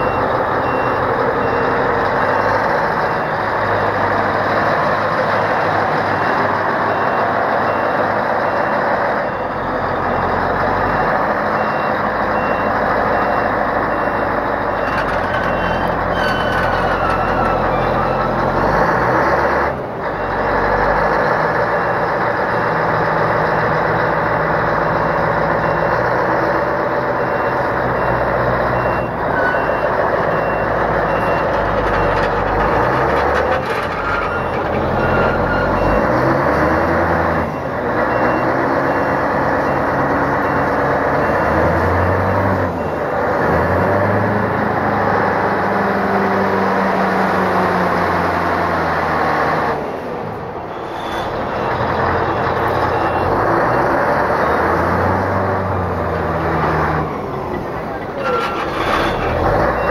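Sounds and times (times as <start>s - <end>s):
reversing alarm beeping: 0.0s - 19.5s, 25.5s - 43.3s, 50.7s - 54.1s, 58.2s - 59.9s
diesel engine running: 0.0s - 48.1s, 49.8s - 59.9s.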